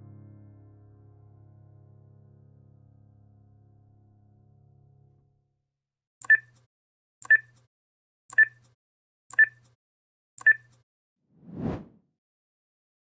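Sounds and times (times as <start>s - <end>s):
short high beeps with clicks: 6.2s - 6.6s, 7.2s - 7.6s, 8.3s - 9.7s, 10.4s - 10.8s.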